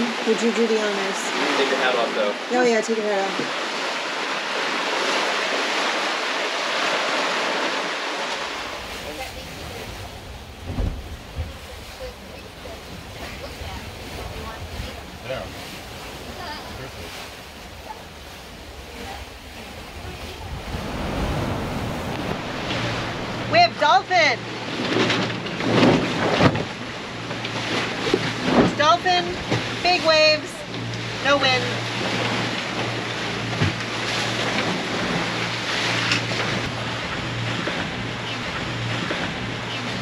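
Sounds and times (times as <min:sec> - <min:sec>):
ocean waves: 0:00.0 - 0:40.0
water splashing along boat hull: 0:00.0 - 0:40.0
wind buffeting microphone: 0:08.4 - 0:26.3
steady low hum: 0:17.3 - 0:24.8
wind on microphone: 0:17.3 - 0:26.4.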